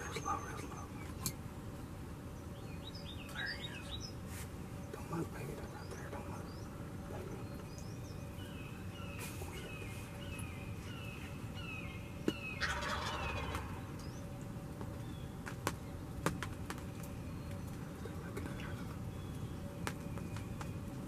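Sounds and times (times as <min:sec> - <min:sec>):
turkey gobbling: 0:12.3 - 0:14.0.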